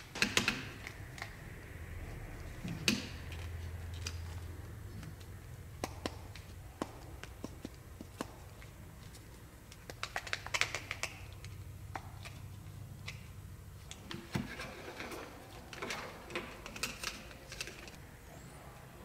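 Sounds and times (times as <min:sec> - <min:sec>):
plastic dolls clicking together: 0:09.7 - 0:12.4.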